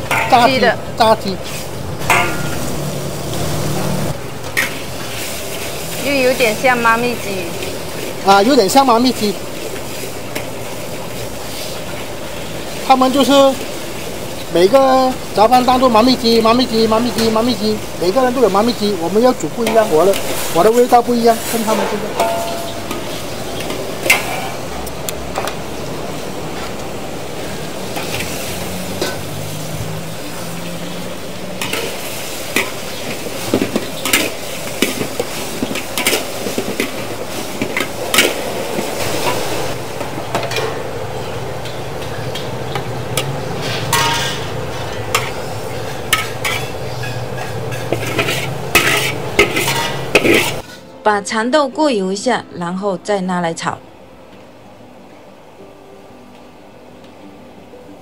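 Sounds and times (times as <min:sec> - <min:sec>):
metal spatula clanking on pan: 0:00.0 - 0:00.6, 0:02.0 - 0:02.7, 0:21.5 - 0:24.6, 0:43.2 - 0:50.8
food sizzling in a wok: 0:00.0 - 0:52.9.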